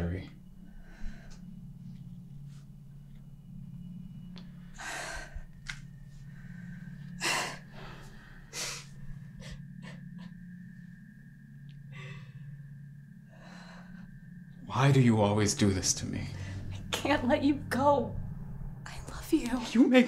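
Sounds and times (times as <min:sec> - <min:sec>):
low hum: 0:00.0 - 0:20.0
thin high tone: 0:07.8 - 0:19.2
woman sobbing: 0:09.4 - 0:10.5.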